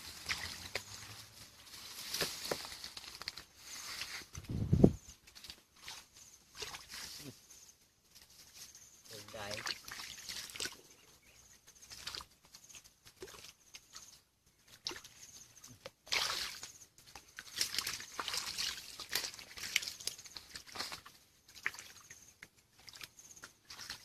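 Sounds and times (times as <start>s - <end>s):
hands splashing in stream water: 0.0s - 1.1s, 9.5s - 10.8s, 15.8s - 24.0s.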